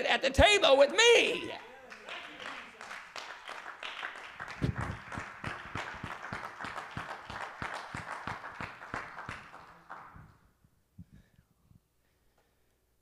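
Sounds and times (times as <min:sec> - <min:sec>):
congregation applauding: 0:01.6 - 0:10.5
sharp close hand claps: 0:01.9 - 0:10.4.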